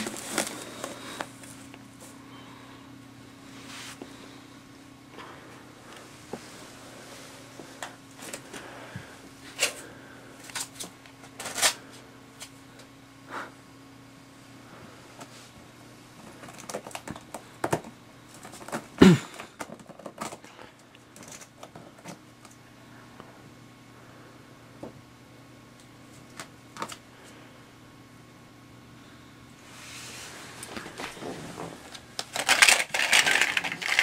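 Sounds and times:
plastic toys clattering in bin: 0:16.2 - 0:20.5, 0:21.2 - 0:22.2, 0:31.0 - 0:34.0.

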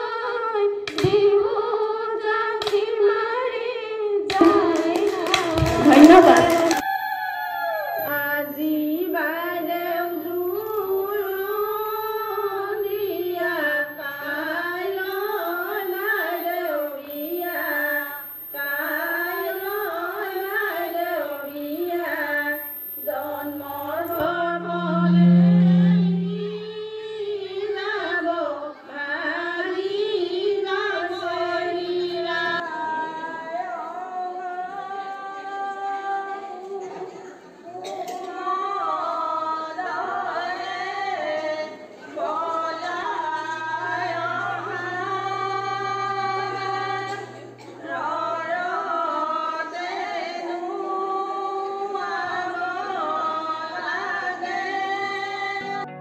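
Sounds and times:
women singing together: 0:00.0 - 0:26.5, 0:27.4 - 0:55.9
loud low hum: 0:09.6 - 0:27.4.

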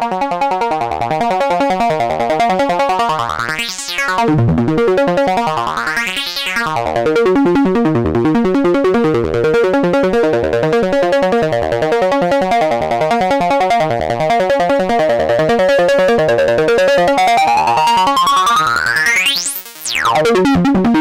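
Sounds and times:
pulsing synthesizer pattern: 0:03.2 - 0:04.5, 0:16.0 - 0:20.4
synthesizer filter sweep: 0:16.3 - 0:20.4.

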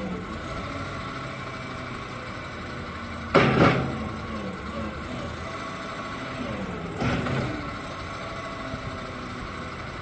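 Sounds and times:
diesel engine running: 0:00.0 - 0:10.0.

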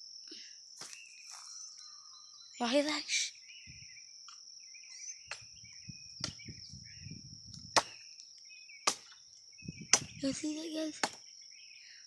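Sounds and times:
bird chirps: 0:00.3 - 0:12.0
chopping knocks: 0:07.8 - 0:08.0, 0:08.8 - 0:09.2, 0:11.0 - 0:11.2.

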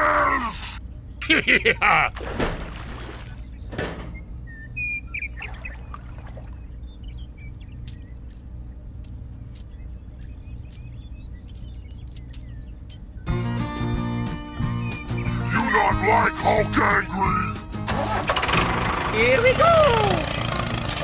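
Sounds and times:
small metal parts clicking: 0:07.6 - 0:10.9, 0:11.5 - 0:13.0.

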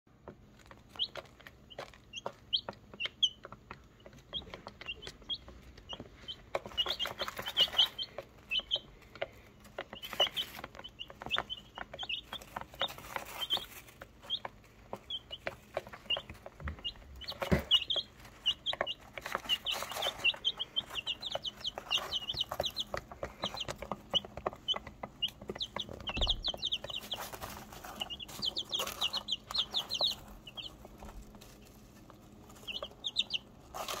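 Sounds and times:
chicks peeping: 0:00.1 - 0:34.0
rustling in wood shavings: 0:06.2 - 0:08.3, 0:09.7 - 0:34.0.

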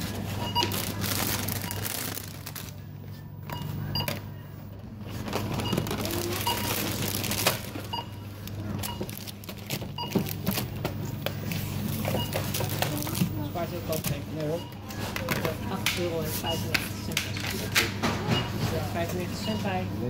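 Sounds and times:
barcode scanner beeps: 0:00.4 - 0:02.1, 0:03.4 - 0:04.4, 0:05.5 - 0:07.1, 0:07.8 - 0:09.3, 0:09.9 - 0:10.5, 0:12.0 - 0:14.9, 0:16.4 - 0:16.8
clatter of goods: 0:05.0 - 0:19.5.

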